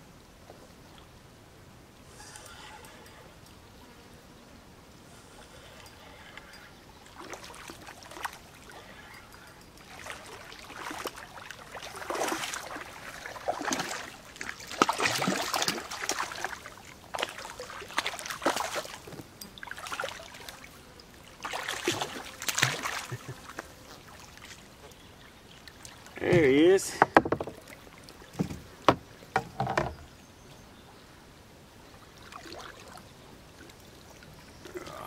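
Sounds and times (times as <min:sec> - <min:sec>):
fish thrashing and splashing water: 0:09.8 - 0:20.6, 0:21.4 - 0:24.6.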